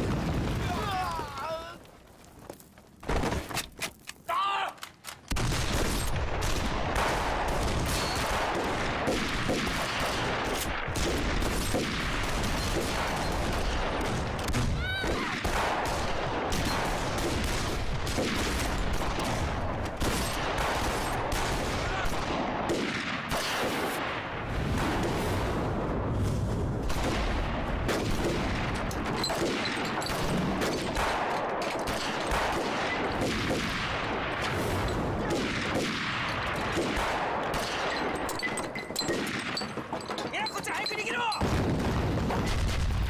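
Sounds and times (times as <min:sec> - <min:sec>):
rifle gunfire: 0:05.3 - 0:24.1, 0:26.9 - 0:39.8.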